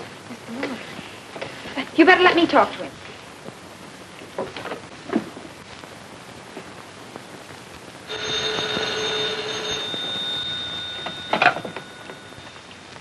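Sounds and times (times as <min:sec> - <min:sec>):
handset clattering: 0:08.1 - 0:12.3
telephone bell ringing: 0:08.1 - 0:12.9.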